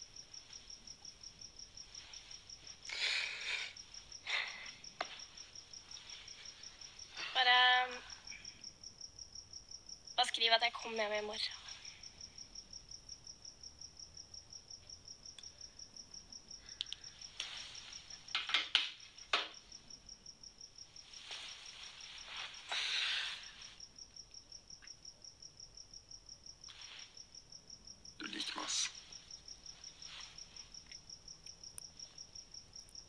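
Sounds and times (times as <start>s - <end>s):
soft hissing rustles: 0.0s - 8.2s, 16.7s - 19.8s, 20.8s - 24.0s, 26.6s - 27.4s, 28.2s - 31.0s
crickets chirping: 0.0s - 33.0s.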